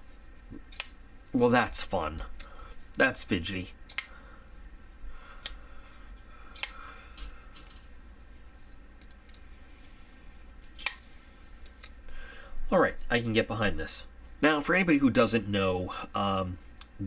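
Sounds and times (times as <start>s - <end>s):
folding knife clicking: 0.7s - 1.0s, 3.9s - 4.1s, 6.6s - 6.8s, 10.8s - 11.0s.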